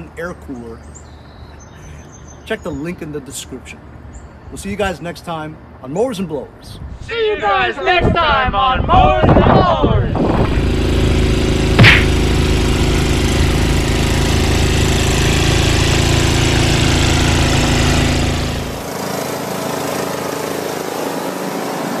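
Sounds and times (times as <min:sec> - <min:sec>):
snowblower engine running: 0:10.2 - 0:22.0.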